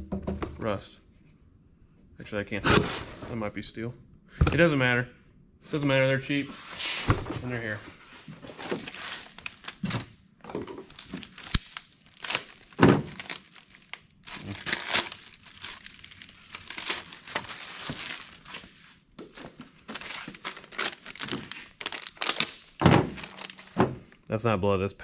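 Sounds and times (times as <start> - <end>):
plastic bags crinkling: 8.5 - 24.2.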